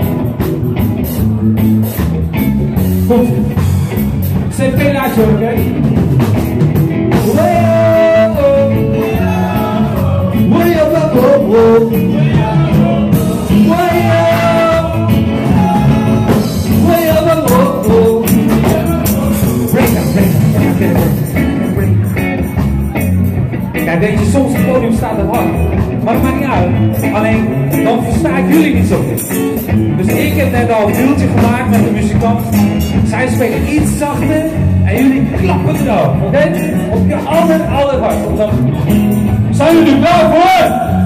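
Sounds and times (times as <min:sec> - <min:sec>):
bass guitar: 0:00.0 - 0:41.0
drum kit: 0:00.0 - 0:41.0
guitars playing: 0:00.0 - 0:41.0
person singing: 0:07.1 - 0:21.9.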